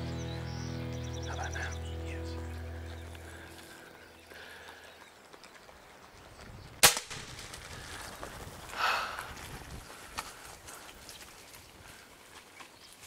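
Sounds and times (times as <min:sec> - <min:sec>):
air rifle firing crack: 0:06.8 - 0:07.5.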